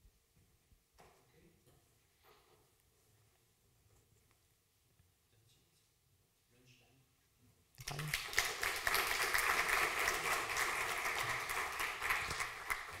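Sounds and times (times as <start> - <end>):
audience applauding: 7.8 - 13.0.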